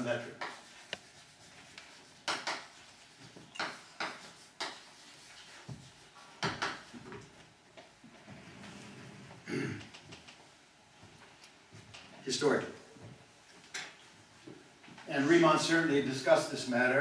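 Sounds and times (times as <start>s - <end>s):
chalk writing on blackboard: 0.0s - 7.0s.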